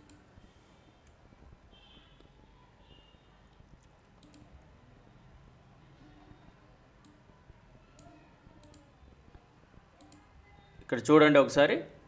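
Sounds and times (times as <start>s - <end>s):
computer mouse clicks: 0.0s - 0.3s, 3.8s - 4.6s, 7.0s - 7.3s, 8.0s - 8.9s, 10.0s - 10.3s.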